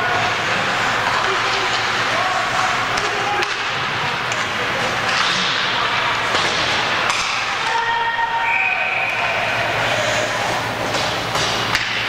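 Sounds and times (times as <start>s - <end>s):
rink and crowd noise: 0.0s - 12.0s
stick hitting puck: 2.9s - 7.5s, 10.8s - 12.0s.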